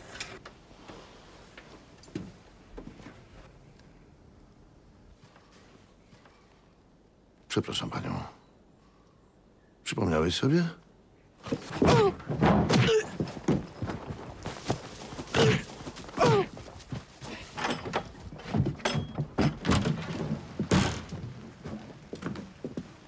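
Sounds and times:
irregular thuds and knocks: 11.4 - 22.9
horse hooves on leaves: 13.2 - 17.4.

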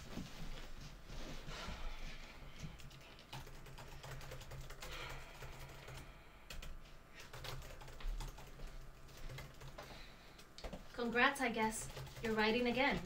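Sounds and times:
laptop keyboard typing: 2.8 - 10.9, 11.5 - 13.0.

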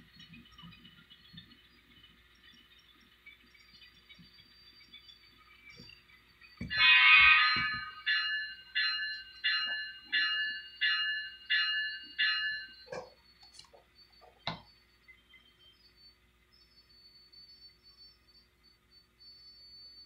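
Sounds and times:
model train warning signal: 6.5 - 16.2.

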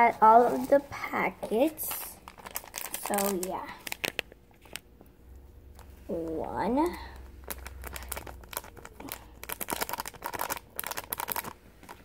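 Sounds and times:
plastic sachet crinkling: 1.5 - 5.0, 6.8 - 12.0.

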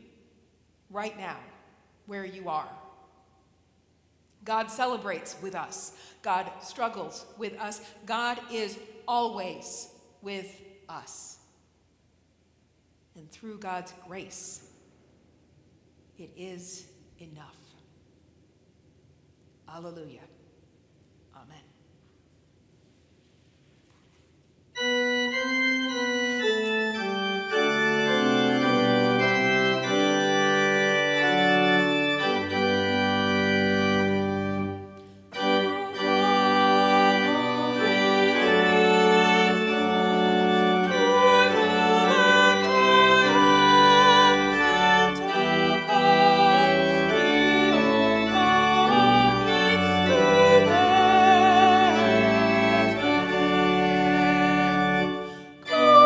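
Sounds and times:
church organ playing chords: 24.8 - 56.0.

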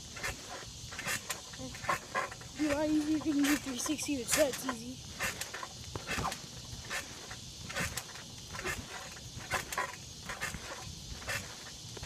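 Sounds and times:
trampoline creak-thump: 0.0 - 12.0.

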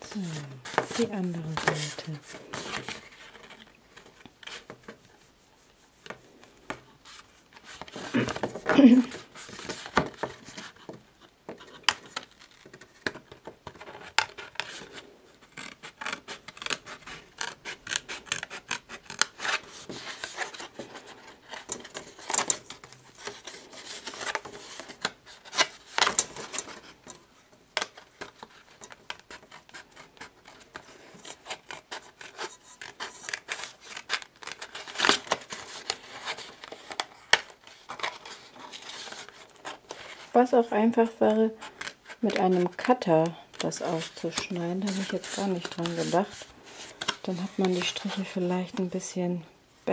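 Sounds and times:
card rustling: 0.0 - 5.1, 27.8 - 49.0.

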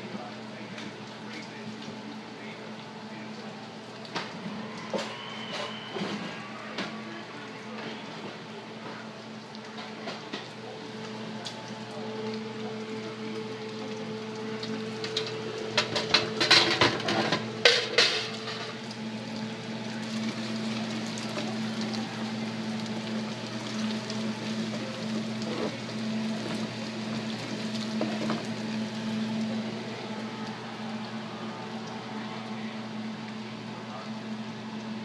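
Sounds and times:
bacon sizzling in oil: 10.9 - 31.3.

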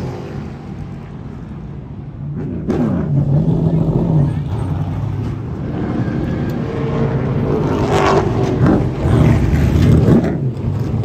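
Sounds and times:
race car engine revving: 2.3 - 11.0.

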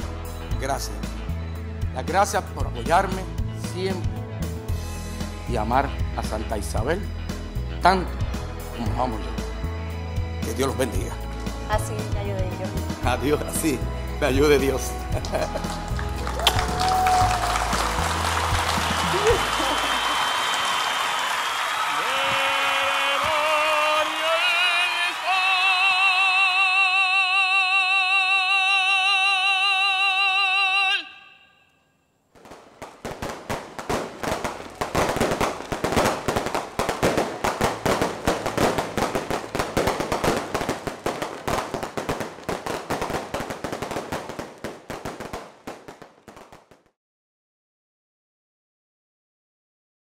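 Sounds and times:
fireworks crackling and popping: 14.4 - 25.9, 32.3 - 47.0
man singing with vibrato: 22.0 - 31.8.

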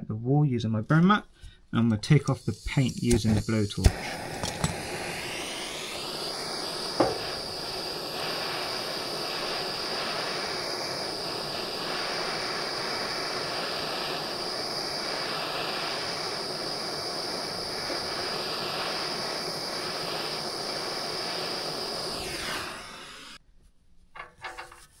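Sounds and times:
blowtorch hissing: 2.0 - 23.4
sharp pop: 6.3 - 7.5.

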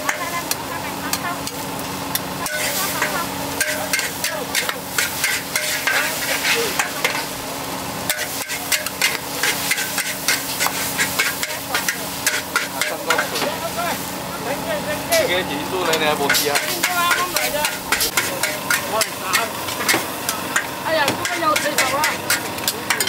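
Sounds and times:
food sizzling: 0.0 - 23.0
metal spatula scraping a wok: 2.4 - 7.4, 8.0 - 13.4, 16.2 - 23.0.

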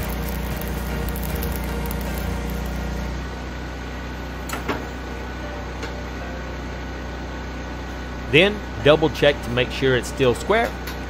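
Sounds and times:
arc welding: 0.0 - 3.3
steady machine hum: 0.0 - 11.0.

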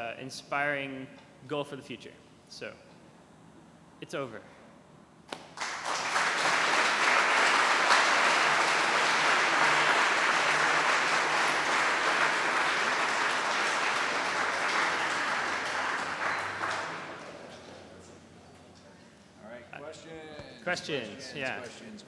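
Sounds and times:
audience applauding: 5.5 - 17.9.

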